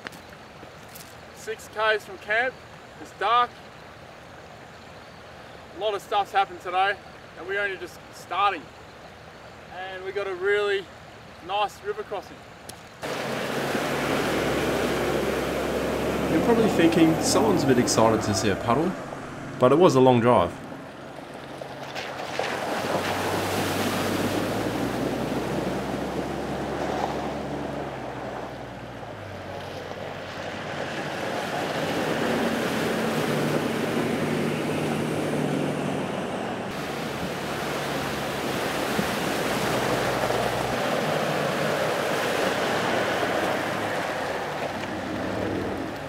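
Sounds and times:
water rushing and splashing: 0.0 - 46.0
vehicle engines running: 13.0 - 23.4.

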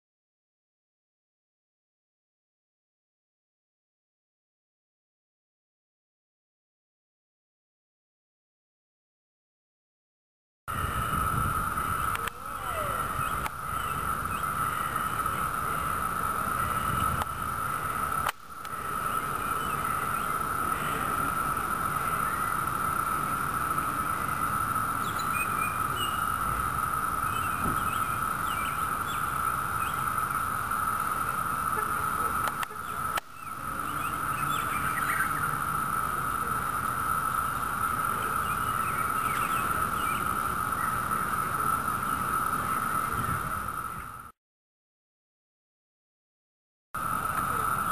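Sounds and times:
cicadas droning: 10.7 - 44.4, 47.0 - 47.9.

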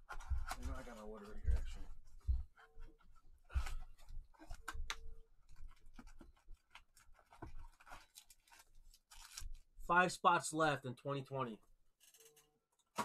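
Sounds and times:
cardboard rustling and scraping: 0.0 - 4.7.

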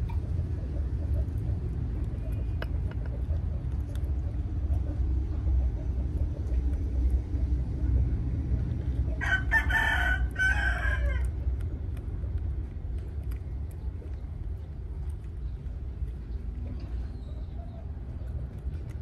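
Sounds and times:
low rumble: 0.0 - 19.0
rooster crowing: 9.2 - 11.3.

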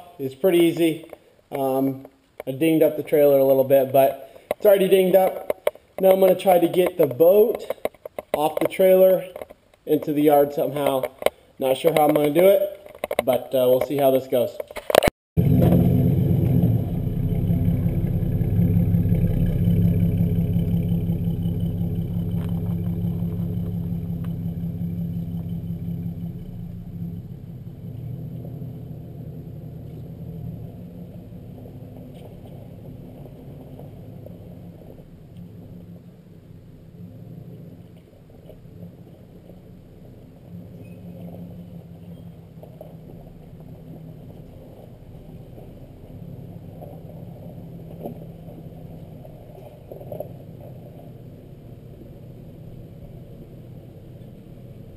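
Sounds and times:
pickup truck engine running: 15.4 - 54.9.

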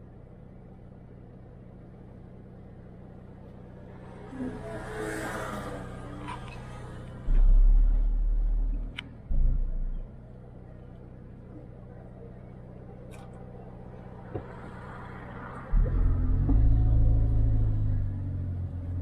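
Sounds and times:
car engine humming: 0.0 - 19.0
loud low rumbles: 7.1 - 10.1, 15.6 - 19.0.

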